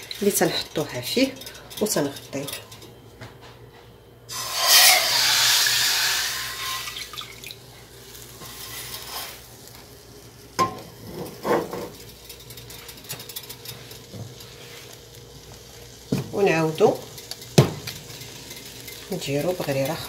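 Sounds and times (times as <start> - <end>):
hot pan hissing in water: 4.3 - 12.1, 13.8 - 20.0.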